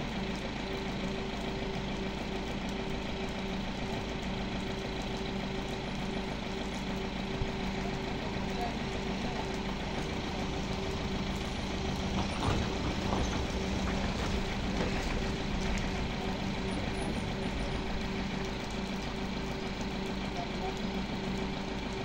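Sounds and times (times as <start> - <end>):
truck engine humming: 0.0 - 22.0.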